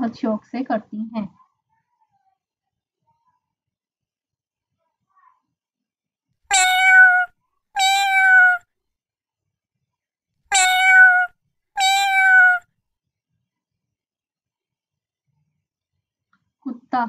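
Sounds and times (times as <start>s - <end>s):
cat meowing: 6.5s - 8.6s, 10.5s - 12.6s.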